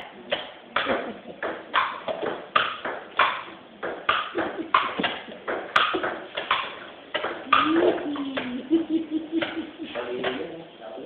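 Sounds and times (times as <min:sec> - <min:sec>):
ping-pong ball hitting paddles: 0:00.0 - 0:08.7
ping-pong ball bouncing on table: 0:00.3 - 0:08.6.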